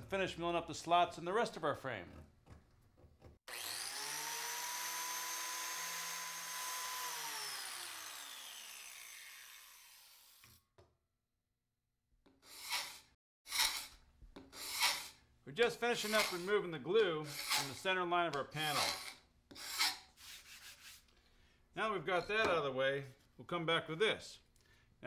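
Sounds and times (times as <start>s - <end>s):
biscuit joiner motor whining: 3.5s - 10.4s.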